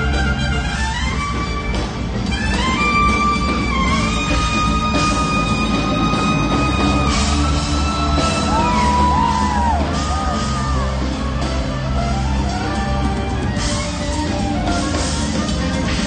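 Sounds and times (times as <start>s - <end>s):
live band playing: 0.0s - 16.0s
audience whooping and yelling: 3.5s - 16.0s.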